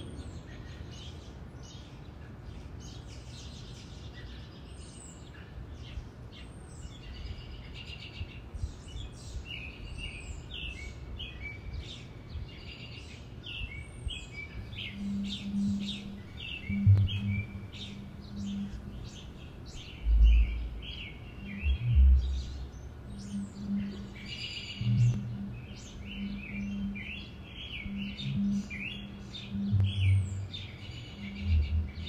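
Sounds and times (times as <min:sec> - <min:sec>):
songbirds chirping: 0:00.0 - 0:32.0
low background rumble: 0:14.0 - 0:32.0
low steady tone: 0:14.6 - 0:32.0.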